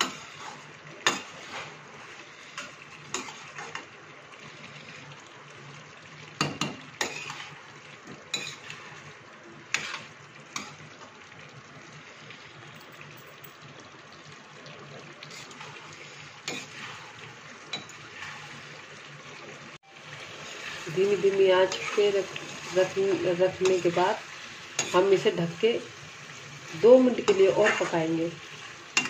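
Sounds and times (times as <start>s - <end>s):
metal spoon scraping a pan: 0.0s - 3.9s, 7.0s - 7.6s, 8.3s - 9.1s, 9.7s - 10.9s, 15.3s - 18.7s, 20.3s - 25.4s, 27.2s - 29.0s
vegetables sizzling: 0.0s - 29.0s.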